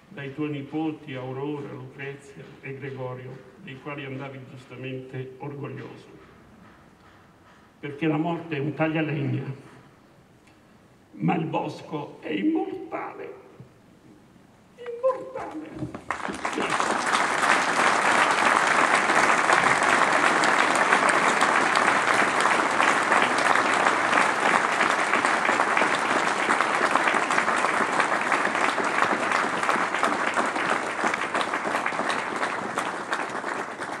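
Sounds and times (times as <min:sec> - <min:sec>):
crowd applauding: 0:15.7 - 0:34.0.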